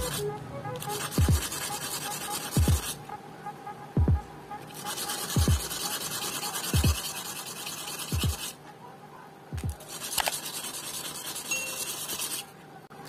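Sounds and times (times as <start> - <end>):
glass scratching on sandpaper: 0.0 - 0.2, 0.8 - 3.0, 4.7 - 8.6, 9.8 - 12.5
background music with low beat: 0.0 - 5.9, 6.6 - 7.1, 8.1 - 8.5, 9.5 - 9.9.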